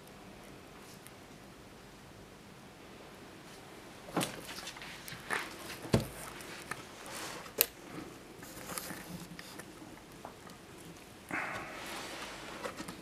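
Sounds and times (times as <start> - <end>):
rustling: 3.4 - 13.0.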